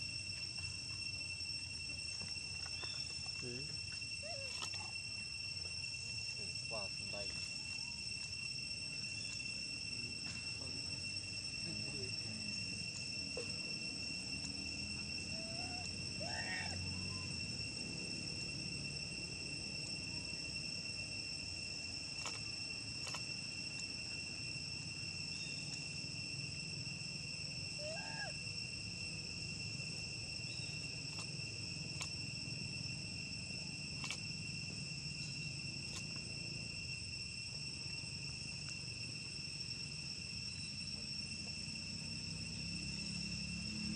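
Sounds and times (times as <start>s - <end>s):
insects droning: 0.0s - 43.9s
short squeaky calls: 4.2s - 4.9s.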